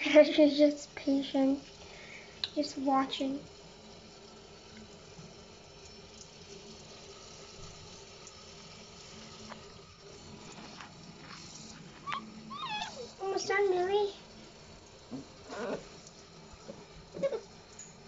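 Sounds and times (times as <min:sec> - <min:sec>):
tap running into a sink: 0:09.2 - 0:09.8, 0:14.9 - 0:18.0
puppy whining: 0:12.0 - 0:13.2, 0:15.5 - 0:15.9.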